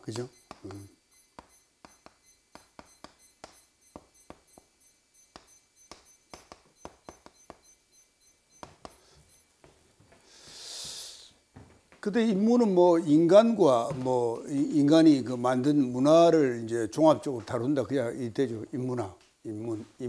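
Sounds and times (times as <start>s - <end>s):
chalk tapping on blackboard: 0.0s - 7.8s, 8.6s - 9.8s.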